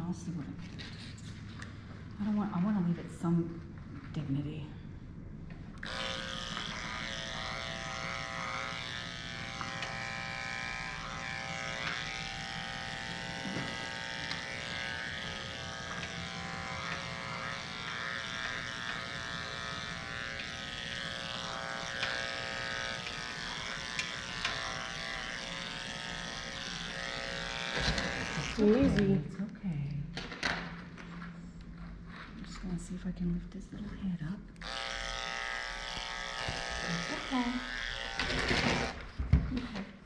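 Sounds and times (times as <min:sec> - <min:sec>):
electric clippers buzzing: 0:05.8 - 0:29.3, 0:34.6 - 0:39.8.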